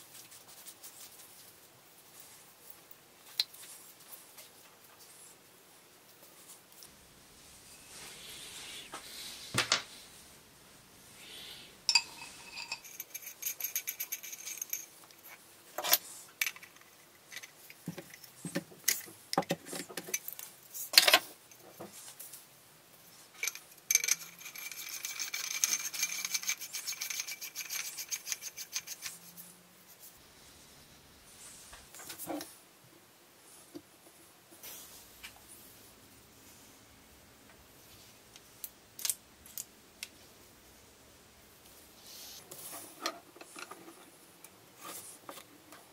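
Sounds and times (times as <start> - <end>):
metal parts clinking: 11.9 - 15.0.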